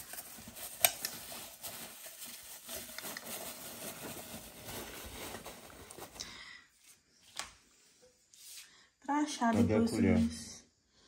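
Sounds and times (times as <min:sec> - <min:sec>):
plastic bag and fabric rustling: 0:00.0 - 0:06.4.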